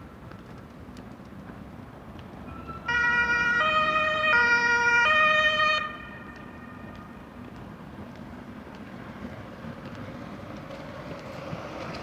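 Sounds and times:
street traffic noise: 0.0 - 12.0
two-tone siren: 2.5 - 6.9.

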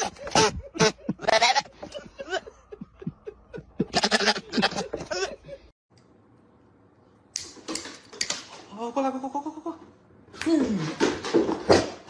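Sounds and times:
goat bleating: 0.3 - 1.8, 3.8 - 4.9.

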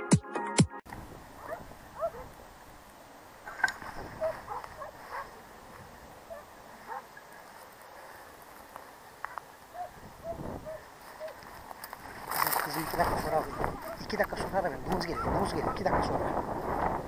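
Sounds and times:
distant dogs yelping: 1.4 - 2.4, 3.5 - 5.5, 6.2 - 8.1, 9.2 - 11.5, 13.2 - 14.1, 15.0 - 16.0.

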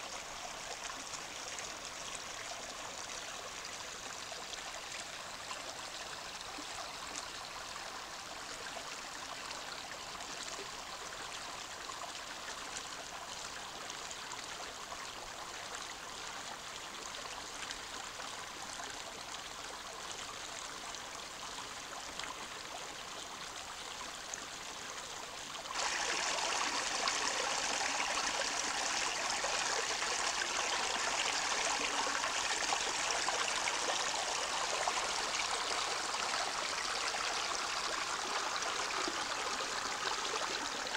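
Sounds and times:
stream babbling over stones: 20.9 - 40.9
water spilling over cascade: 25.7 - 40.9.

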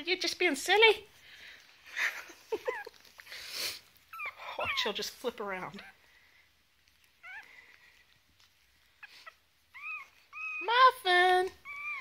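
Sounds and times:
puppy whining and squeaking: 2.6 - 3.2, 4.0 - 6.1, 6.8 - 12.0.

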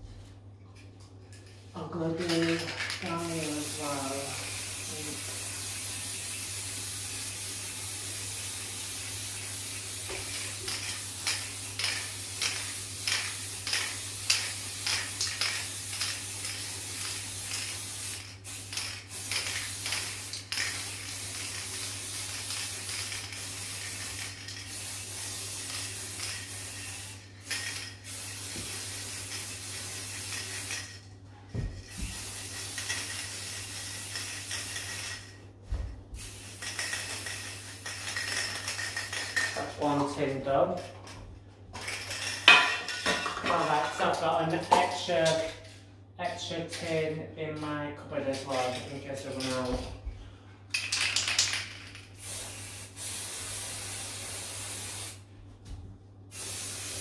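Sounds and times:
spray paint can hissing: 2.3 - 31.0, 31.9 - 35.3, 36.2 - 39.6, 50.9 - 55.2, 56.3 - 57.0.

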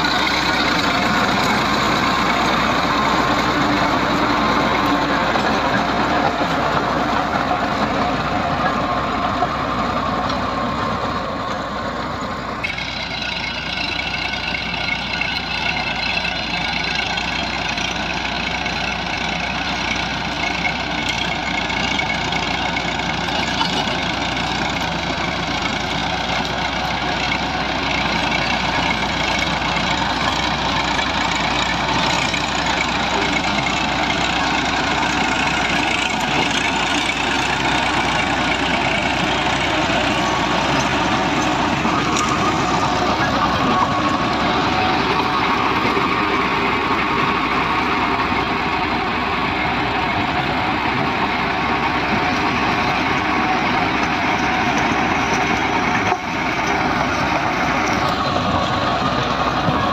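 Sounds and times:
tractor diesel engine running: 0.0 - 59.9
rotavator churning soil: 20.9 - 59.9.

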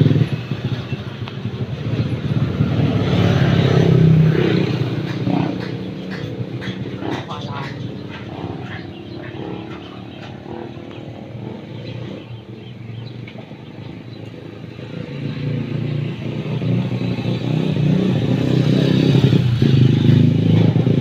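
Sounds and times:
motorcycle engine approaching: 0.0 - 21.0.

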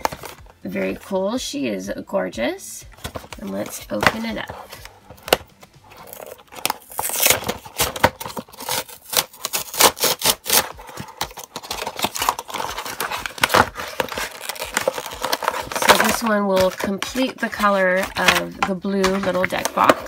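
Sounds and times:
cardboard tearing and crinkling: 3.1 - 20.0.

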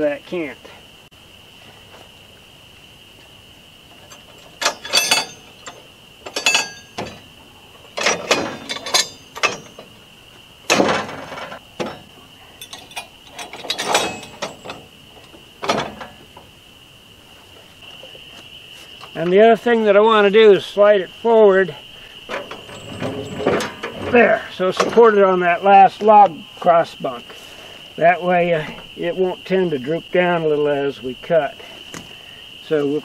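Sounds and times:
high insect drone: 0.0 - 33.0
metal clanks and ratchet clicks: 4.0 - 7.3, 7.9 - 10.0, 10.7 - 16.2, 22.3 - 25.0
sharp knocks: 10.7 - 12.2.

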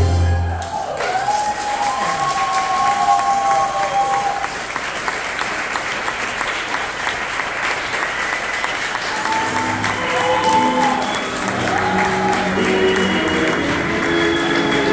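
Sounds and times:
tango music: 0.0 - 0.5, 8.9 - 14.9
audience applauding: 0.3 - 14.9.

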